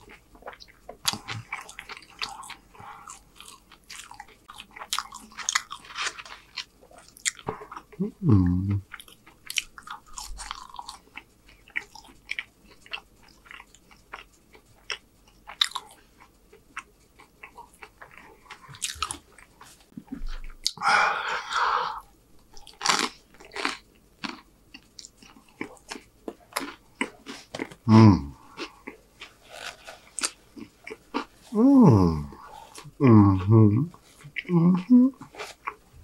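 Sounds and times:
wet chewing and crunching: 0.0s - 8.0s, 8.8s - 20.8s, 22.4s - 31.6s, 32.3s - 36.0s
food crackle: 3.3s - 7.8s, 22.5s - 27.9s, 28.5s - 31.6s
person humming: 8.0s - 8.8s, 27.9s - 28.4s, 31.5s - 35.3s.

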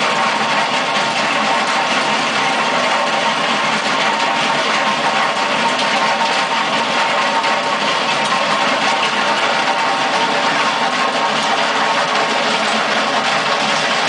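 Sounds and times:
cutting drum grinding concrete: 0.0s - 14.0s
diesel engine under load: 0.0s - 14.0s.

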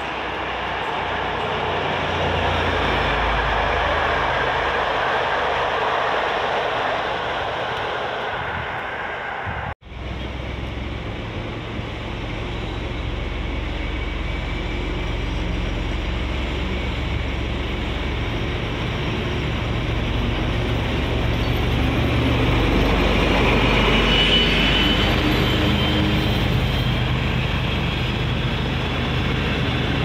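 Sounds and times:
diesel locomotive engine rumble: 0.0s - 30.0s.

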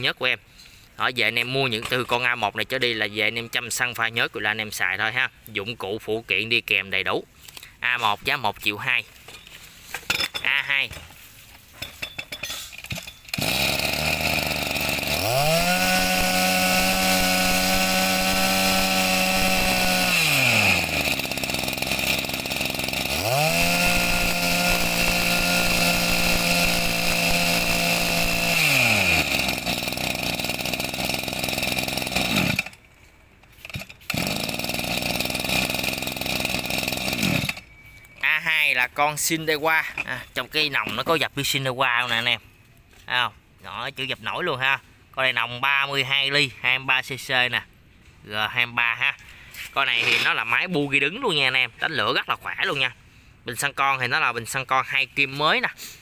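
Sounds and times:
brush-cutter engine revving: 13.3s - 32.8s, 33.6s - 37.6s.

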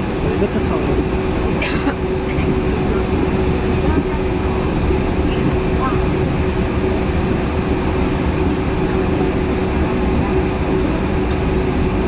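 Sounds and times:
steady low drive tone: 0.0s - 12.0s
train tyres rumbling on guideway: 0.0s - 12.0s.

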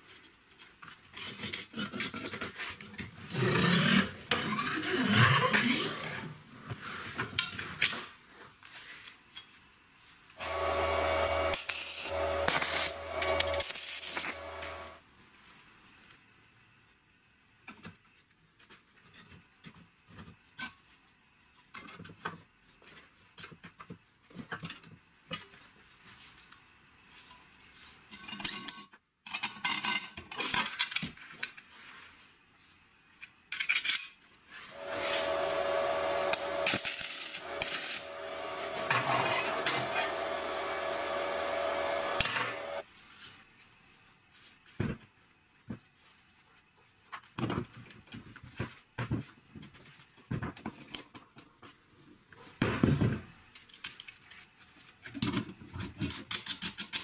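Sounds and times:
power tool whining: 10.4s - 15.0s, 34.7s - 42.8s
sheet metal clinking and scraping: 34.8s - 41.4s.

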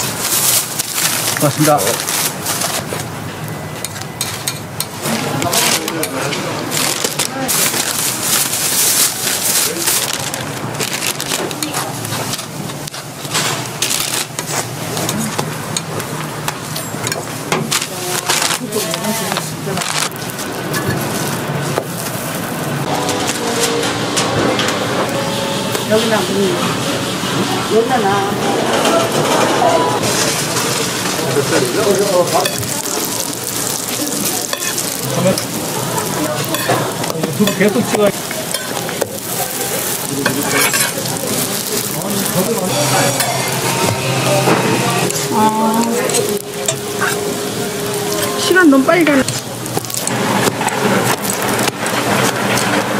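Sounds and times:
food sizzling in oil on a griddle: 30.1s - 52.9s
metal tongs tapping griddle: 34.5s - 35.5s.

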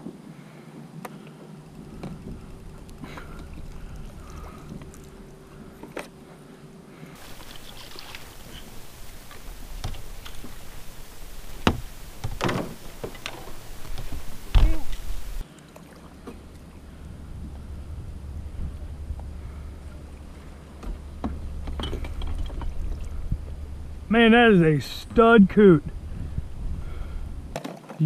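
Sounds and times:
water and wind hiss: 0.0s - 27.6s
paddle knocks: 7.2s - 15.4s
paddle strokes splashing: 7.2s - 17.6s.

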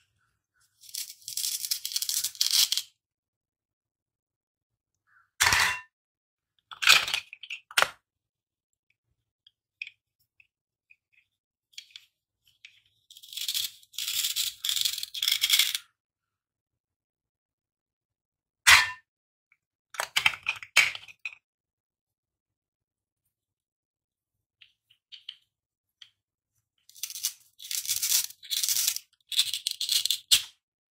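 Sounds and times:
plastic toy pieces clattering: 0.8s - 2.9s, 6.7s - 8.0s, 13.1s - 15.9s, 26.9s - 30.5s.

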